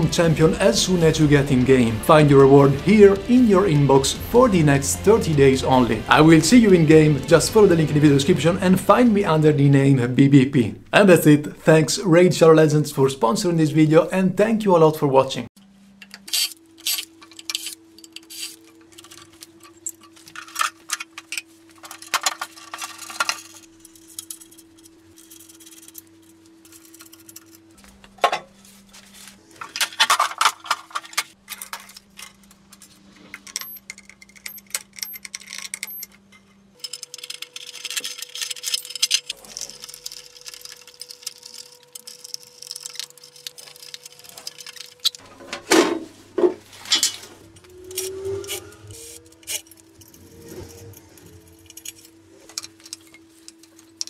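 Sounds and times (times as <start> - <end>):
faint steady hum: 4.2 - 54.0
clatter of hand tools and metal: 16.0 - 28.5, 29.6 - 46.0, 49.2 - 54.0.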